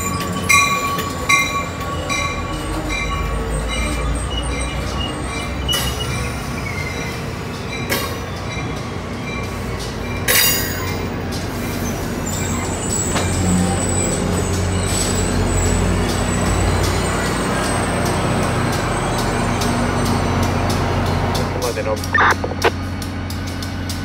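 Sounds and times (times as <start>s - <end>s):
train rolling with low rumble: 0.0s - 24.0s.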